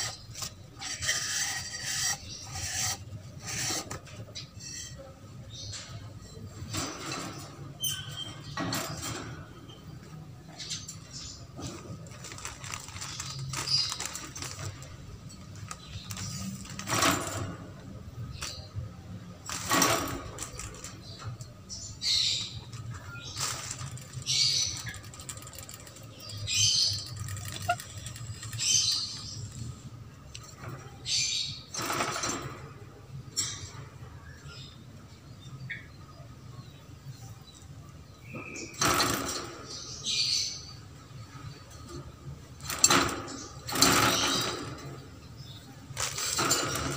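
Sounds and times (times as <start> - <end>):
short scratchy scrapes: 0.0 - 5.0.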